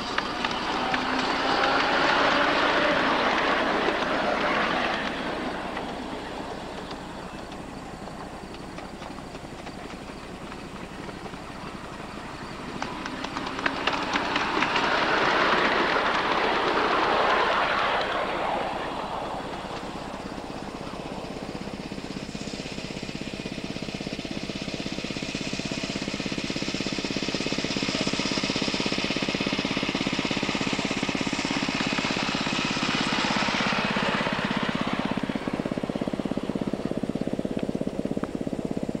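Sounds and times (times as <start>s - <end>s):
wheels clicking over rail joints: 0.0s - 18.4s
miniature trains rolling past: 0.0s - 39.0s.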